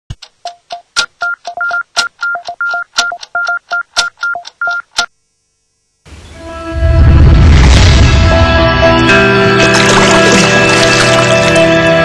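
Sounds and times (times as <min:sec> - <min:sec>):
rhythmic electronic clicks and beeps: 0:00.1 - 0:05.3.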